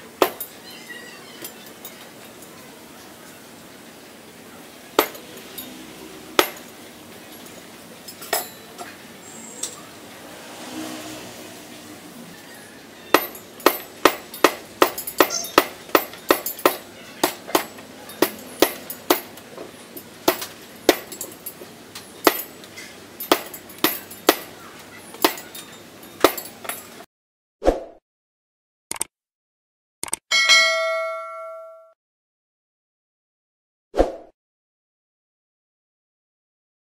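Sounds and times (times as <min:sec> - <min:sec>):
sound effect: 0:27.6 - 0:28.0, 0:34.0 - 0:34.4.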